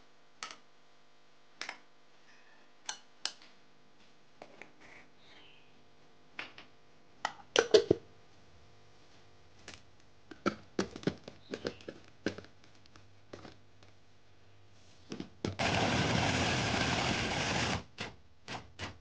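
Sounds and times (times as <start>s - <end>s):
food chopper motor running: 15.6s - 17.9s.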